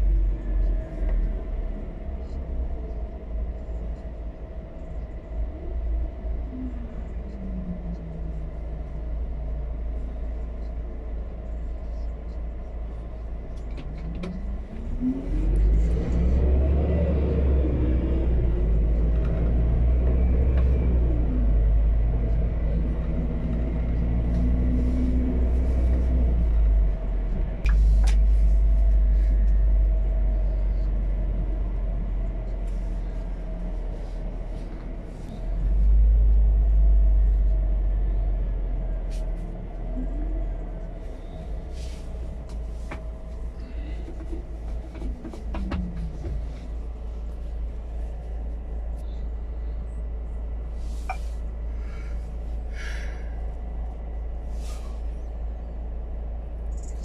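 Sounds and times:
truck engine accelerating: 13.4 - 57.0.

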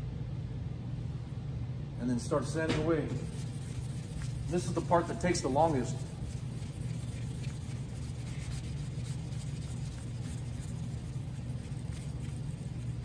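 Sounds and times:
steady low hum: 0.0 - 13.0
wet sanding rubbing: 3.1 - 13.0.

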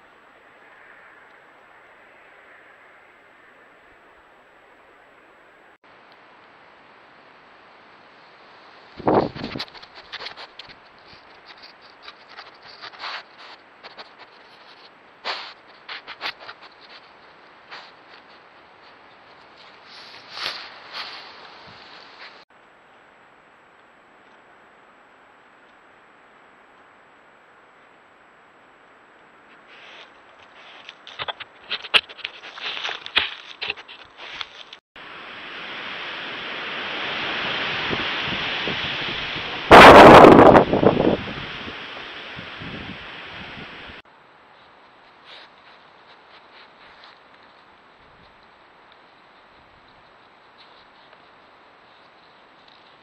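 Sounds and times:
storm wind on microphone: 8.9 - 11.2, 35.1 - 44.0
fur scraping against microphone: 9.0 - 17.1, 19.6 - 22.4
scrapes and sharp clicks: 29.6 - 34.8.

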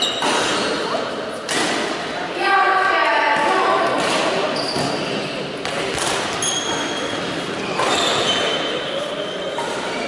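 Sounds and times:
shoes squeaking on floor: 0.0 - 1.0, 4.5 - 10.0
racket hitting shuttlecock: 1.4 - 2.0.

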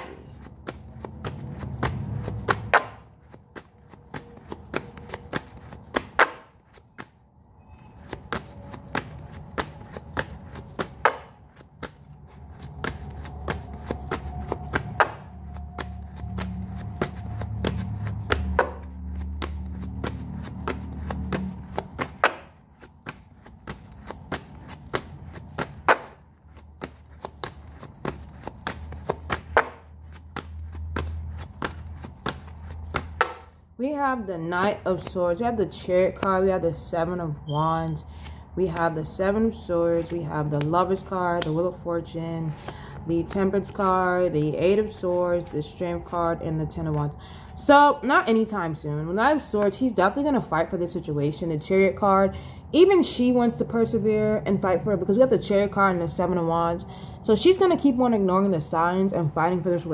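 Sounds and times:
cards being shuffled: 3.6 - 7.1, 8.0 - 33.4.

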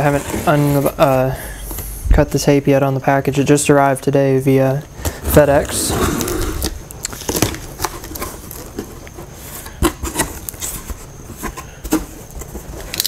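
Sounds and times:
cardboard scraping and rustling: 0.0 - 1.3, 5.0 - 13.0.

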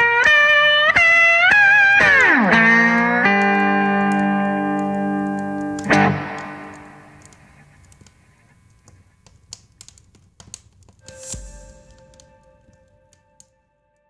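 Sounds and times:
faint clicks: 3.3 - 13.5
soft held note: 11.0 - 13.5
guitar strum ringing: 11.0 - 13.8.

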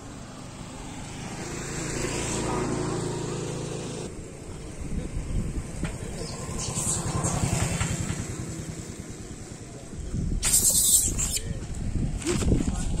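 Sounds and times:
wind buffeting microphone: 4.2 - 9.2, 9.8 - 13.0
burst of hiss: 10.4 - 11.4.

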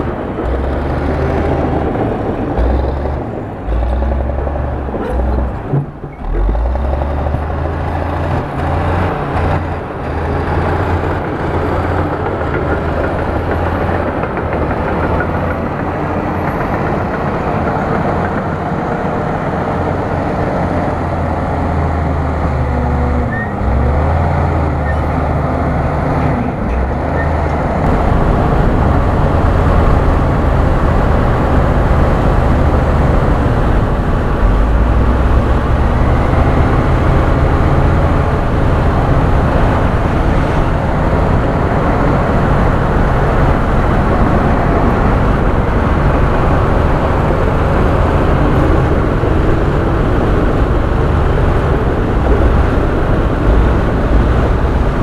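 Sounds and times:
bulldozer diesel engine droning: 0.0 - 55.0.

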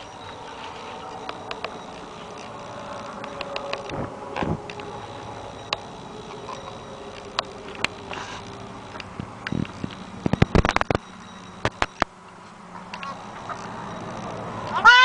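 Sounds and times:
straw rustling: 0.0 - 3.2
sharp clicks and crackles: 0.0 - 14.8.

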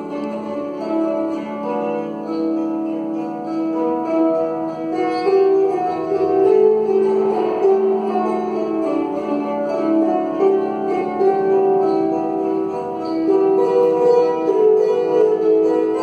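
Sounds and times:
lyres plucked: 0.0 - 16.0.

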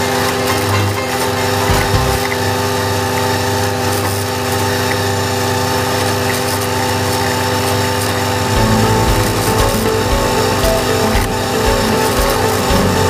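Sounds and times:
tractor diesel engine running: 8.5 - 13.0.

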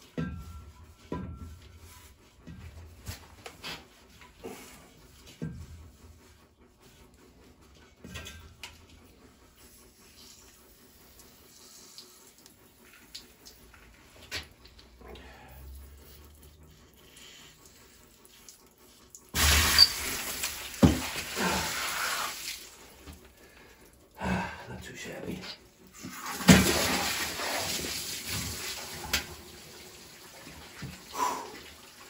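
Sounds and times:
water rushing out: 26.2 - 29.2.

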